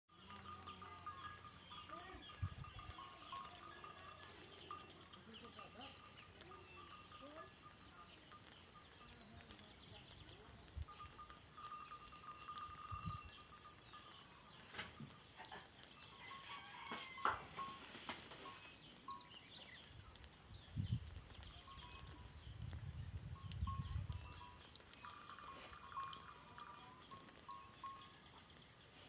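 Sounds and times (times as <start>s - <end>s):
thin high calls: 0.1s - 20.5s, 23.6s - 29.0s.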